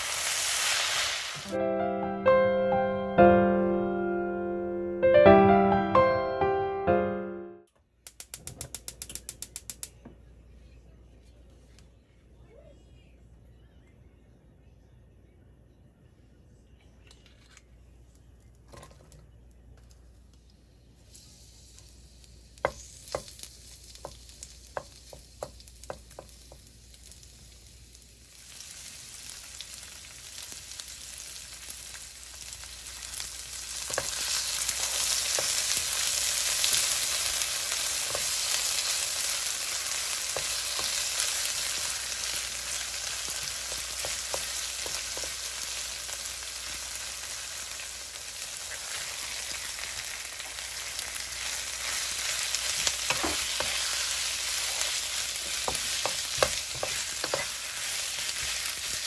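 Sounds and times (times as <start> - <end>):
onions sizzling in a frying pan: 0.0 - 1.6, 20.8 - 59.0
wooden spatula tapping: 55.4 - 57.7.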